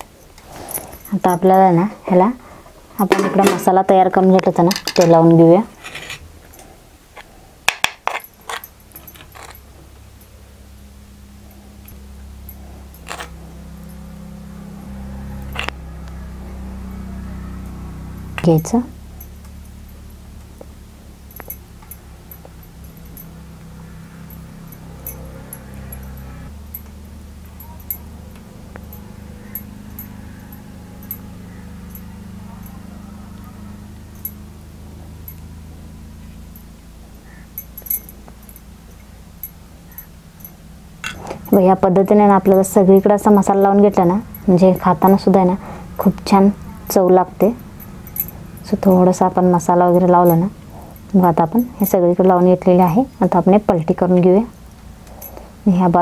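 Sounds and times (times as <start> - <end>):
steady low hum: 0.0 - 56.0
faint small clinks and ticks: 4.3 - 10.5, 11.4 - 14.3, 17.6 - 56.0
metal spoon scraping a plate: 5.8 - 6.3.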